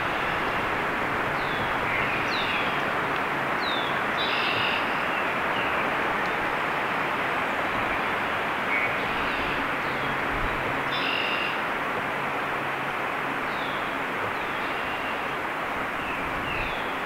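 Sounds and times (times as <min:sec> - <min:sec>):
rushing background noise: 0:00.0 - 0:17.0
rich layered bird call: 0:01.3 - 0:02.8, 0:03.6 - 0:05.8, 0:10.9 - 0:11.6, 0:14.4 - 0:15.3
birds chirping: 0:01.3 - 0:02.9, 0:03.6 - 0:06.5.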